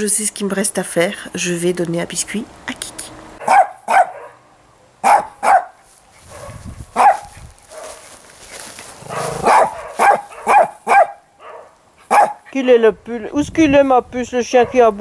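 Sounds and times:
dog barking: 3.4 - 8.0, 9.1 - 12.5.

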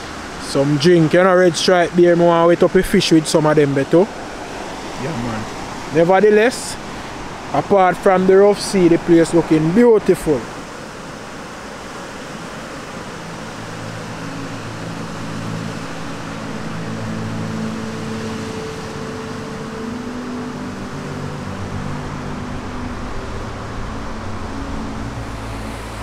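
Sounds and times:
low steady hum: 12.2 - 26.0.

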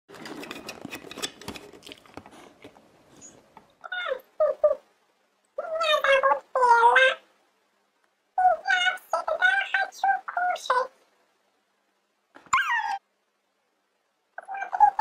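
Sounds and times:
scratchy clicking and scuffling: 0.1 - 2.8.

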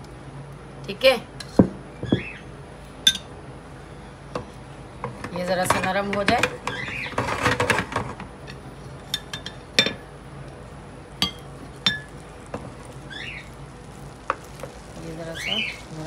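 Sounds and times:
metal tongs clinking on glass bowl: 11.2 - 12.1.

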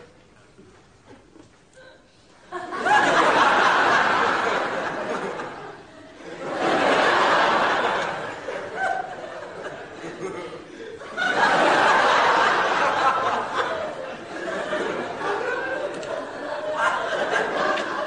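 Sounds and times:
studio audience laughing: 2.5 - 18.0.

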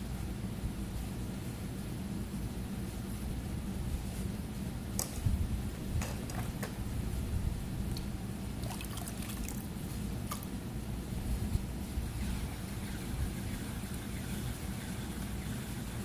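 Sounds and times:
potter's wheel humming: 3.6 - 16.0.

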